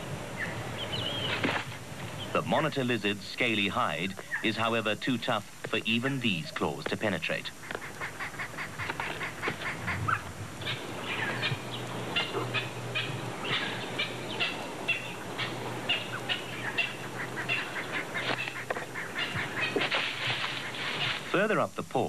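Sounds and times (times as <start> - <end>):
birds short sharp calls: 0.3 - 2.5, 6.3 - 21.4
downward-sweeping bird notes: 9.3 - 21.0.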